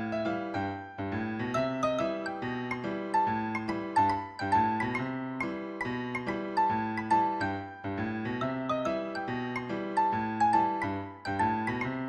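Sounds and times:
slow keyboard melody: 0:00.0 - 0:12.0.

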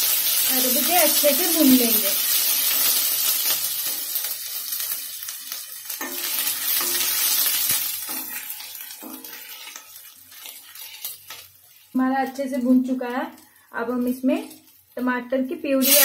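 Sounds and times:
spices sizzling in hot oil: 0:00.0 - 0:16.0
wooden spatula scraping pan: 0:06.0 - 0:11.8.

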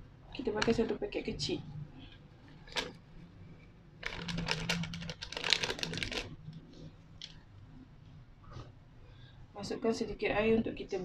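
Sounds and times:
spice packet crinkling and rattling: 0:02.6 - 0:03.0, 0:04.0 - 0:06.4.

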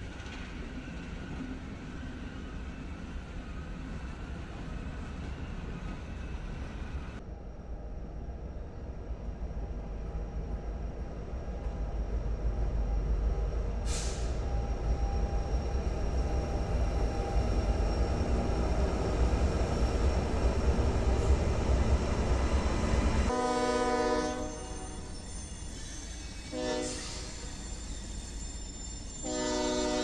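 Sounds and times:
wheels rumbling on rail: 0:00.0 - 0:30.0
short hiss: 0:13.9 - 0:14.4
locomotive horn chord: 0:23.3 - 0:25.0, 0:26.5 - 0:27.2, 0:29.2 - 0:30.0.

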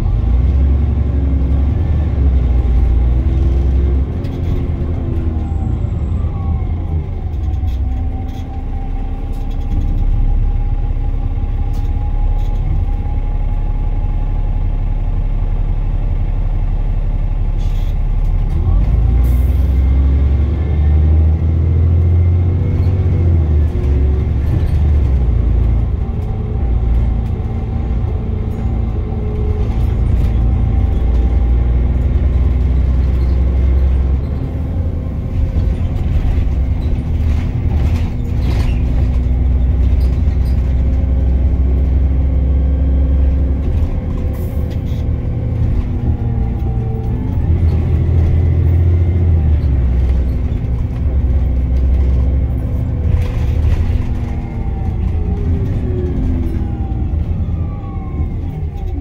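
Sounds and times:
bus engine drone: 0:00.0 - 0:59.0
road rumble: 0:00.0 - 0:59.0.

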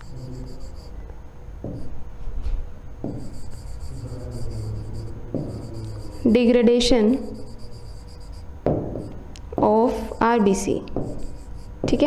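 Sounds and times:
steady low hum: 0:00.0 - 0:12.0
stylus scratching on pen display: 0:03.1 - 0:06.3, 0:07.1 - 0:09.2, 0:11.0 - 0:12.0.

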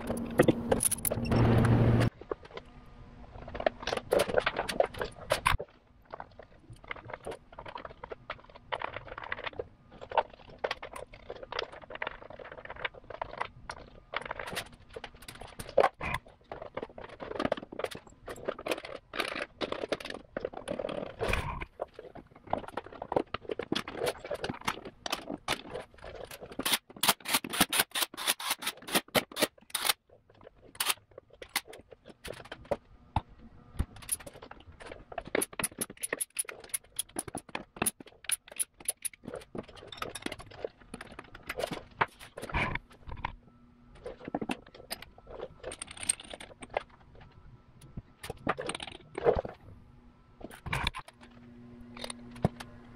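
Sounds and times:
sharp plastic clicks: 0:26.4 - 0:30.0.

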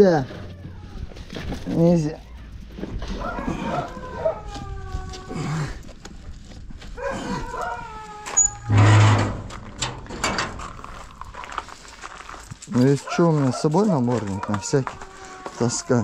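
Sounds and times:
dog whining: 0:03.2 - 0:05.7, 0:07.0 - 0:09.2.

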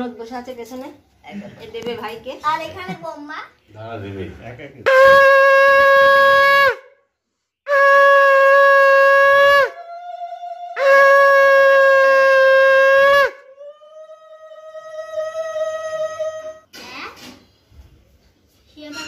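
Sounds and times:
conch shell blasts: 0:04.9 - 0:06.9, 0:07.7 - 0:09.8, 0:10.8 - 0:13.4.

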